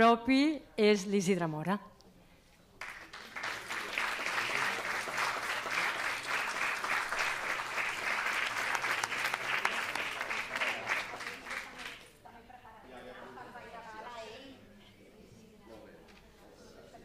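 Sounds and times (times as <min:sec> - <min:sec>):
audience applauding: 0:02.8 - 0:12.1.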